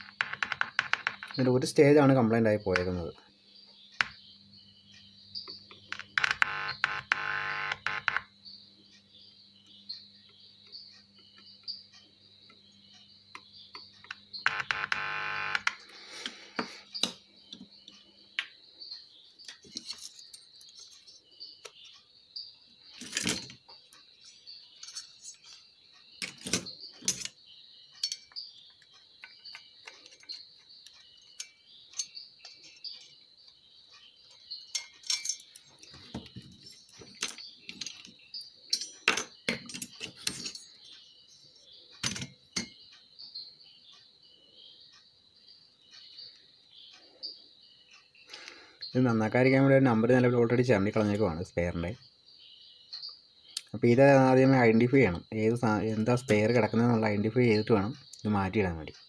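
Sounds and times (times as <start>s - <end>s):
crickets chirping: 0.0s - 59.0s
metal clicks and clinks on workbench: 24.8s - 25.6s, 26.2s - 27.4s, 28.0s - 28.4s, 34.7s - 35.7s, 38.7s - 40.8s.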